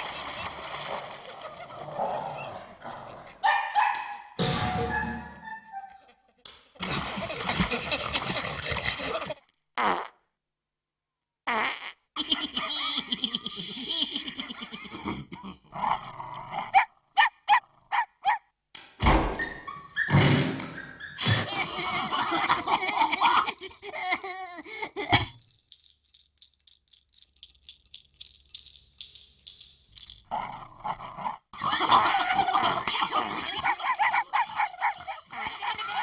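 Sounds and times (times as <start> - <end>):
cartoon dogs yapping: 16.6 - 18.5, 31.6 - 36.0.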